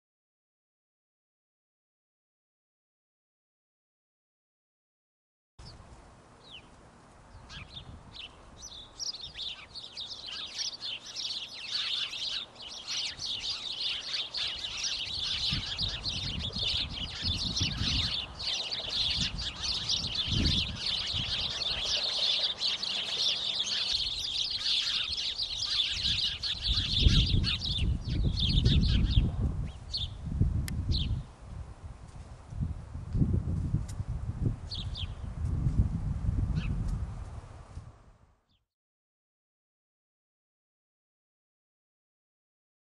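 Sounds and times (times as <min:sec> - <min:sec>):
swallows chirping: 0:06.4 - 0:30.2, 0:30.9 - 0:31.2, 0:34.7 - 0:35.2
low microphone rumbles: 0:15.1 - 0:22.5, 0:26.0 - 0:38.3.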